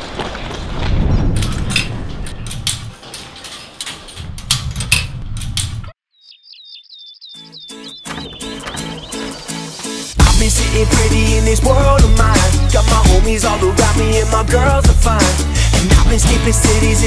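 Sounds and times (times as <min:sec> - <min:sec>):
small birds chirping: 0:05.8 - 0:10.1
gate latch rattling: 0:08.1 - 0:09.1.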